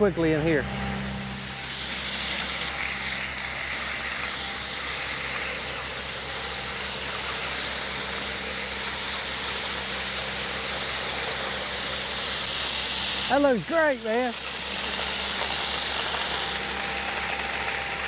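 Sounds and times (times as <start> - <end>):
air and mulch hissing through hose: 0.0 - 18.0
diesel engine hum: 0.0 - 18.0.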